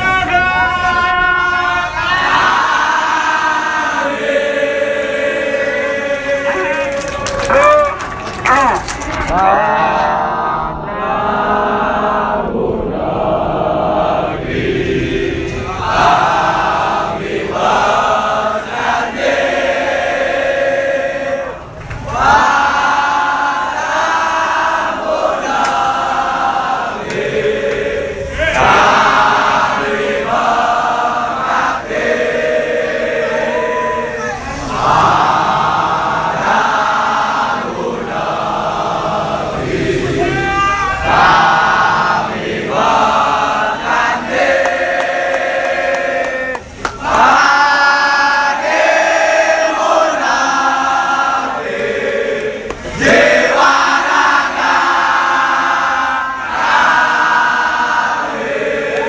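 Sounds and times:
crowd of men chanting: 0.0 - 7.4, 9.2 - 59.0.

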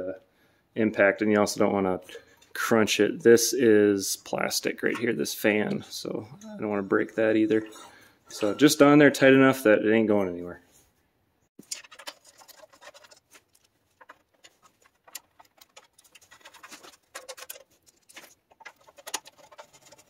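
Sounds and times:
plastic housing clicks and scrapes: 11.6 - 20.0.

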